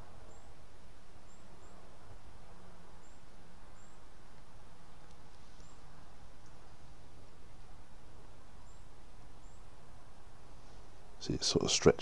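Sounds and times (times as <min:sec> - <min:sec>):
faint high bird chirps: 0:08.6 - 0:09.7.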